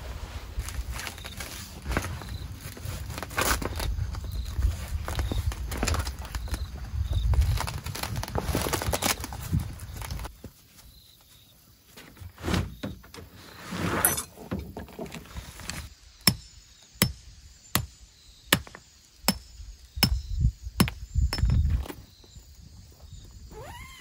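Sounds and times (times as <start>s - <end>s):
rustling: 0.0s - 15.9s.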